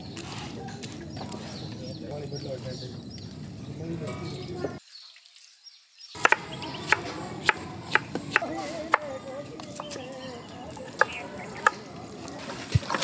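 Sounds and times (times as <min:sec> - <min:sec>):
sharp irregular knocks: 0:06.2 - 0:07.0.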